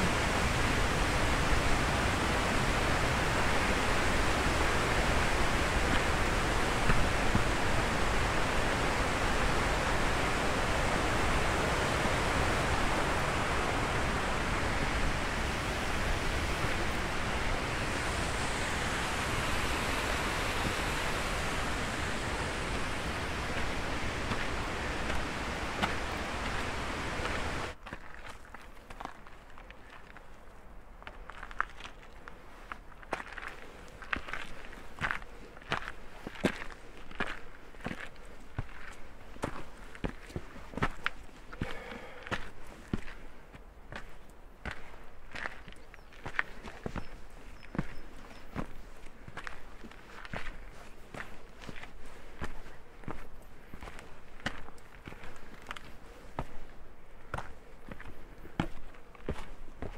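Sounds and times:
mountain stream rushing: 0.0s - 27.8s.

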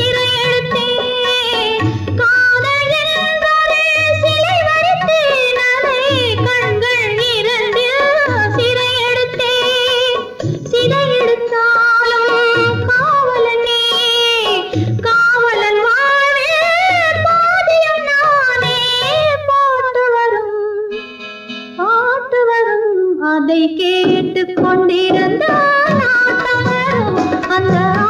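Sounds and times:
soft drum beats: 0.0s - 17.6s, 23.9s - 28.0s
held instrumental chord: 20.9s - 21.9s
woman singing ornamented melody: 21.8s - 28.0s.

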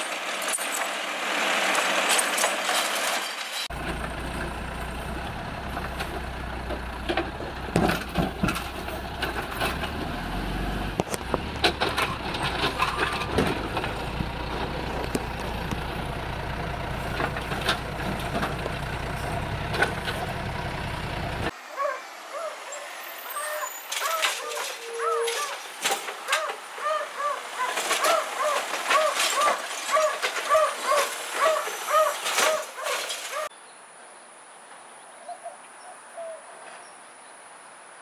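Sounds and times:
outdoor ambience: 0.0s - 38.0s
diesel engine running: 0.1s - 21.6s
carts banging into hopper: 11.2s - 15.9s, 23.9s - 33.5s.

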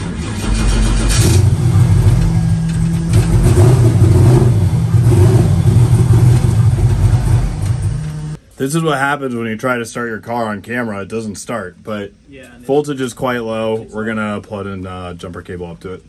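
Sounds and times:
starter motor cranking engine: 0.0s - 8.4s.

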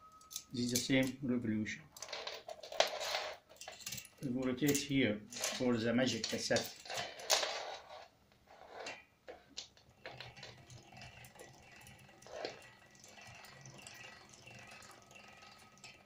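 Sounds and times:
bicycle wheel whirring: 8.5s - 16.0s
clicking of gears and freewheel: 9.6s - 16.0s.

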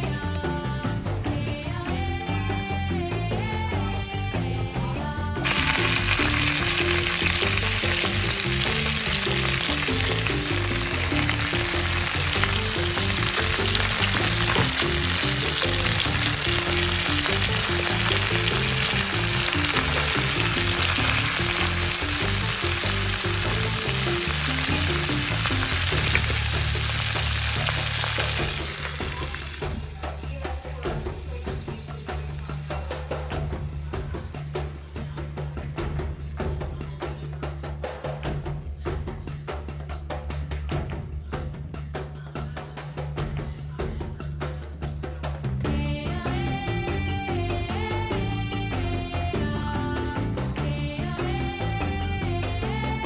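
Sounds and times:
background music: 0.0s - 53.0s
food sizzling in a pan: 5.4s - 33.2s.

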